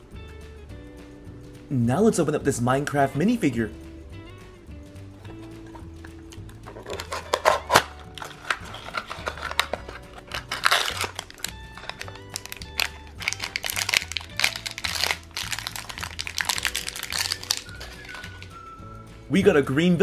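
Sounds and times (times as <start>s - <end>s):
background music: 0.0s - 20.0s
foil wrapper crinkling and tearing: 6.7s - 18.6s.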